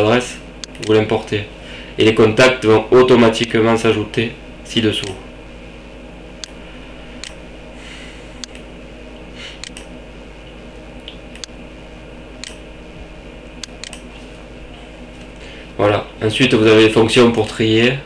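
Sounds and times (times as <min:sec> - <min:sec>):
steady electrical hum: 0:00.0 - 0:18.0
computer mouse clicking: 0:07.2 - 0:07.4, 0:08.4 - 0:08.7, 0:09.6 - 0:09.9, 0:11.1 - 0:11.6, 0:12.4 - 0:12.6, 0:13.6 - 0:14.1.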